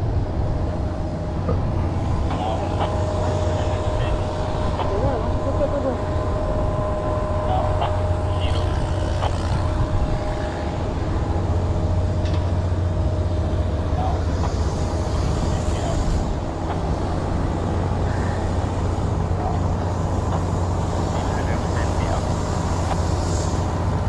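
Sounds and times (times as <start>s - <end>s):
heavy machinery drone: 0.0s - 24.0s.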